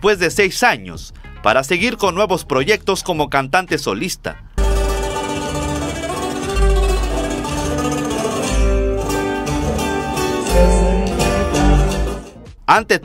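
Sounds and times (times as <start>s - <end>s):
deep bass notes: 4.4s - 12.8s
acoustic guitar plucked melody: 4.6s - 12.5s.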